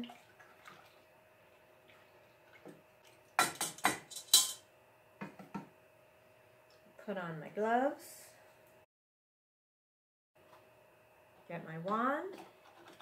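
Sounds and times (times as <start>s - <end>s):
utensil clinking against metal bowl: 3.4s - 4.6s.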